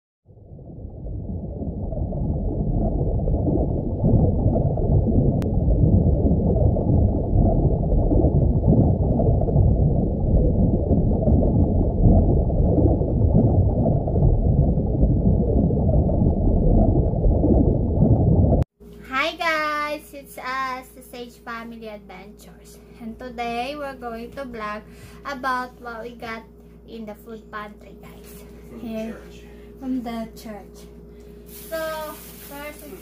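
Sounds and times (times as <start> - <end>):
muffled underwater rumble: 0.3 - 18.7.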